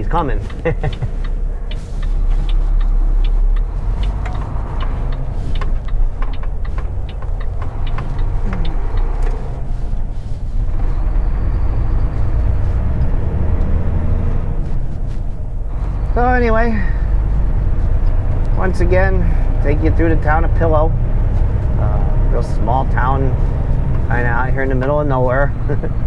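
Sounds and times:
sharp clicks and rattles: 0.0 - 11.3
diesel truck engine rumbling: 0.0 - 26.0.

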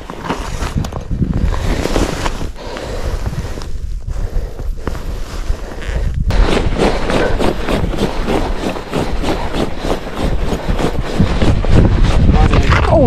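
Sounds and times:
wind rumble on microphone: 0.0 - 13.0
boots crunching on snow: 4.9 - 12.7.

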